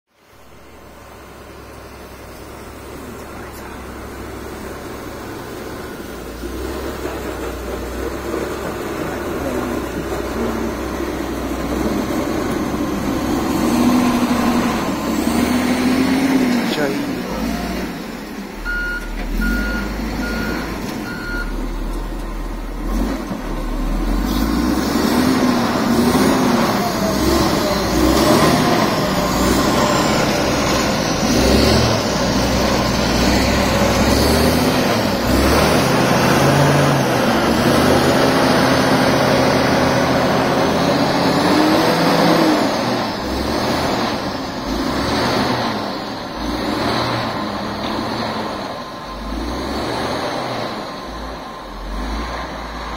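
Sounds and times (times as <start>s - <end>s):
diesel engine under load: 0.1s - 52.9s
reversing alarm beeps: 18.6s - 21.6s.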